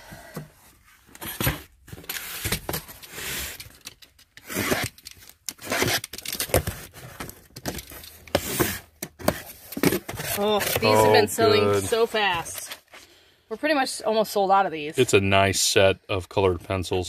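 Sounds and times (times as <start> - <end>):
knife slitting packing tape: 4.4 - 6.5.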